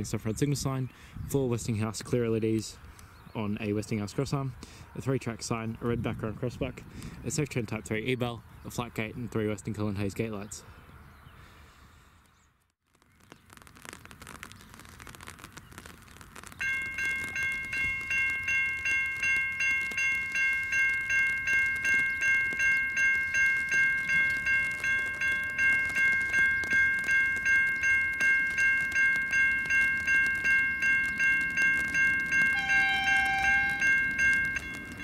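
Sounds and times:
level crossing bells ringing: 16.6 - 35.0.

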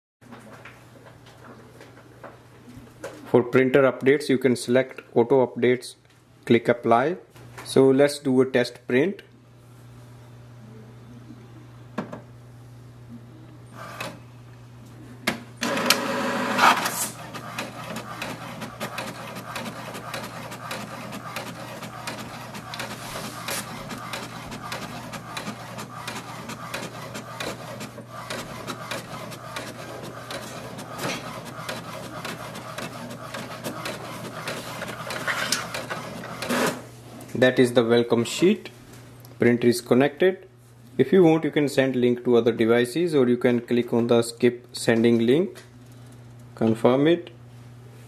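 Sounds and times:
printer mechanism whirring and clicking: 13.8 - 14.2, 15.3 - 36.9
printer clicks: 15.6 - 36.8
paper swishing out: 16.6 - 36.4.

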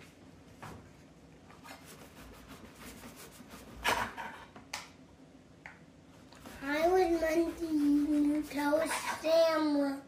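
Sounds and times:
knife sawing through bread: 6.5 - 9.1.

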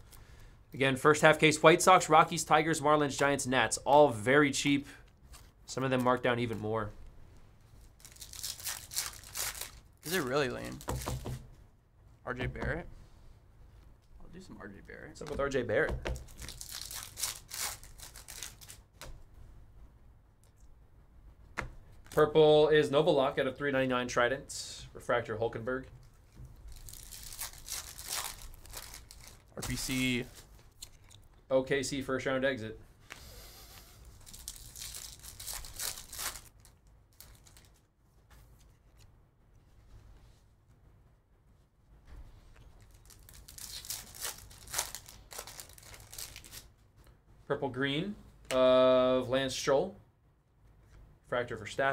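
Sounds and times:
cards rustling: 7.8 - 11.4, 15.2 - 19.1, 26.0 - 31.4, 33.1 - 39.1, 42.7 - 46.7
foil wrapper tearing and crinkling: 8.0 - 11.0, 16.3 - 18.8, 26.6 - 31.3, 34.2 - 37.8, 42.8 - 46.7.

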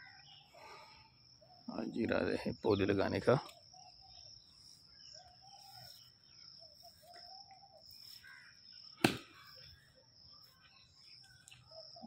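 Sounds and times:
short bird calls: 3.5 - 9.8
sharp thump: 9.0 - 9.4.

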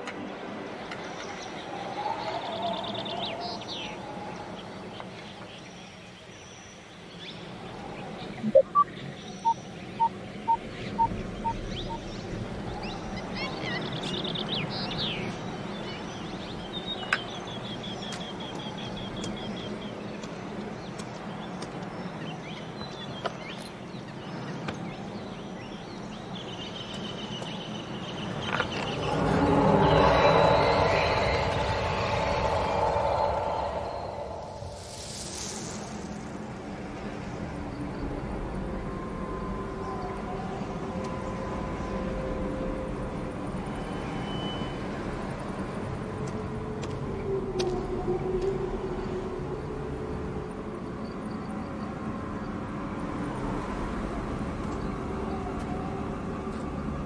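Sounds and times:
steady background hush: 0.0 - 47.2
birds chirping: 1.0 - 35.8
low hum: 28.1 - 44.1
low rumble: 28.4 - 40.4.

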